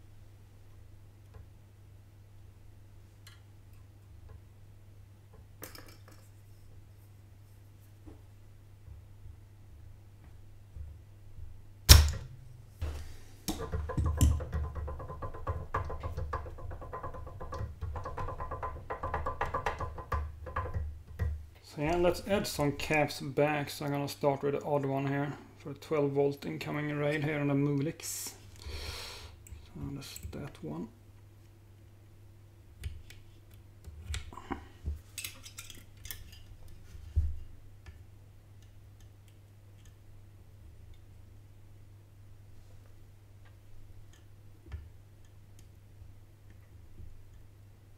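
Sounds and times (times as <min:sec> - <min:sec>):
steady low hum: 0:06.3 - 0:16.1.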